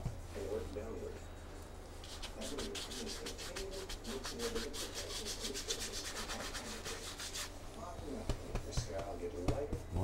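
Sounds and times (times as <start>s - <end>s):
paintbrush scrubbing on canvas: 2.0s - 7.6s.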